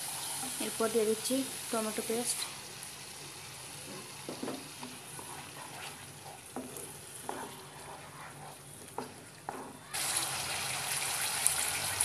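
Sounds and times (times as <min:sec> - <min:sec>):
paste sizzling in oil: 0:00.0 - 0:12.0
wooden spatula scraping a pan: 0:03.8 - 0:09.9.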